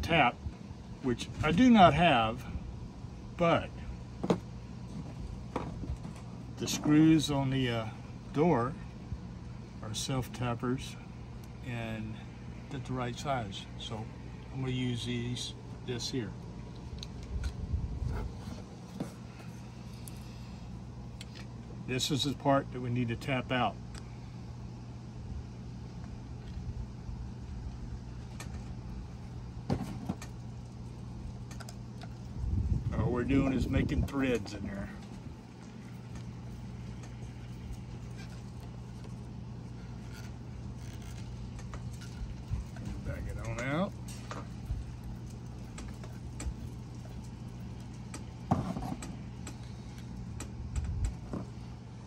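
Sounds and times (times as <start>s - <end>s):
steady low hum: 0.0s - 52.0s
faint clicks and scrapes: 36.9s - 44.6s.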